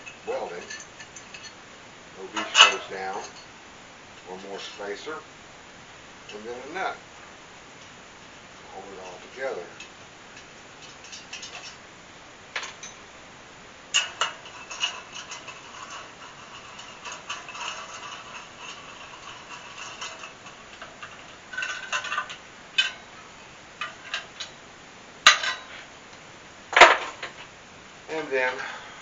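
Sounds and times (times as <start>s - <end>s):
small metal parts clicking: 9.0s - 11.8s, 13.9s - 23.2s.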